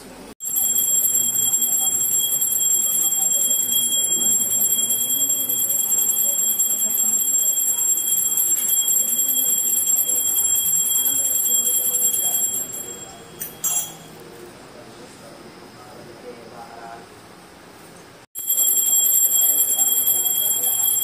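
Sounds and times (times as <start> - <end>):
temple bell ringing: 0.4 - 14.2, 18.4 - 21.0.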